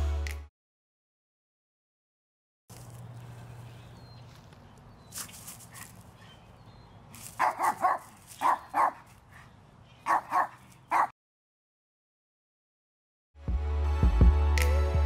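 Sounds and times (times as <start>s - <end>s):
dog barking: 7.4s - 9.1s, 10.0s - 11.2s.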